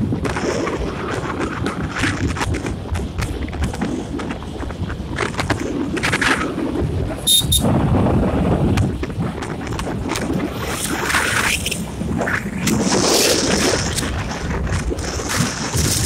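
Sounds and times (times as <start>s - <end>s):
road rumble: 0.0s - 16.0s
wind buffeting microphone: 0.0s - 16.0s
short high beeps: 7.3s - 7.7s.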